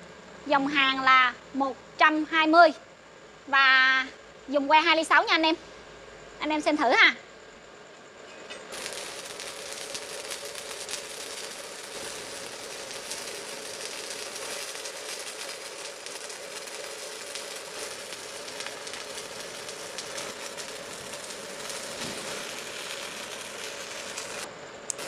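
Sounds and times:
welder hum: 8.6s - 25.0s
welding arc crackling: 8.7s - 25.0s.

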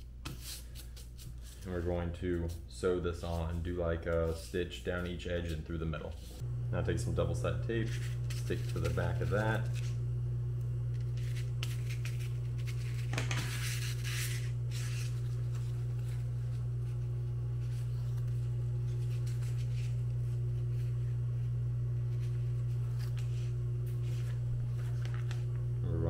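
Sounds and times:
steady low hum: 0.0s - 26.0s
tape rustling and crackling: 10.8s - 21.2s, 21.9s - 25.7s.

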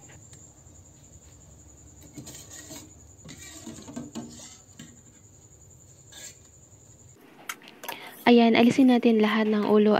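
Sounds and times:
crickets trilling: 0.0s - 7.2s
ladle scraping in a pot: 2.0s - 5.2s, 6.0s - 6.5s.

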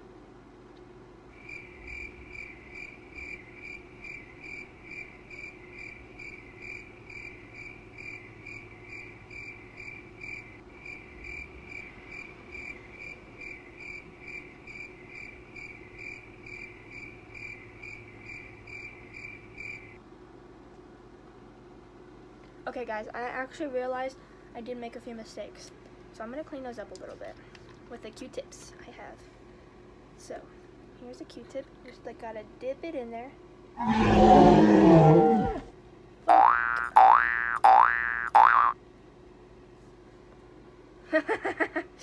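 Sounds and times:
steady low hum: 0.0s - 42.0s
cricket chirping: 1.3s - 20.0s.

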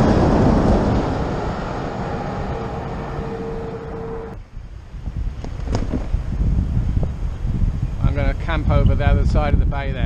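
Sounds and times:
steady hum: 0.0s - 4.4s
truck passing close: 0.0s - 4.4s.

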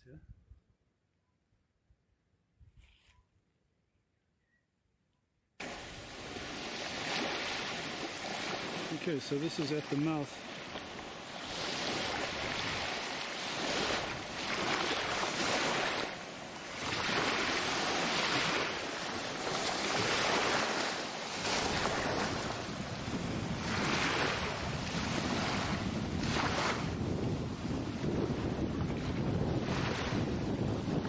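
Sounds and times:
small waves washing: 5.6s - 31.0s
wind on microphone: 9.8s - 31.0s.

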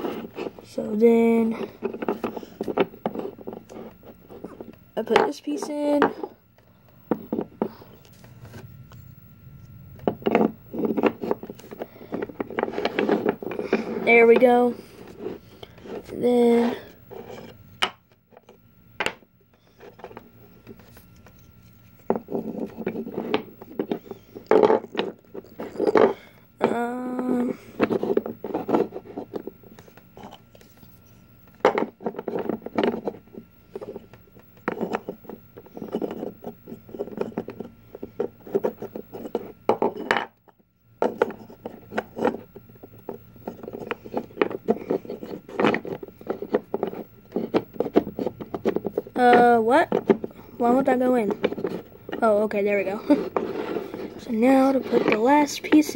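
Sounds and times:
wooden pieces scraping: 10.0s - 17.9s, 41.0s - 55.9s
person humming: 26.6s - 27.7s.

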